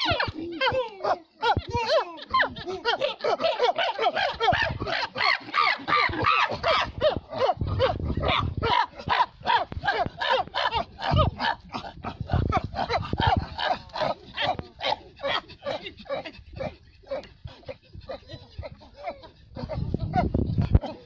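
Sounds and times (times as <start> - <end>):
chimpanzees calling: 0.0 - 7.8.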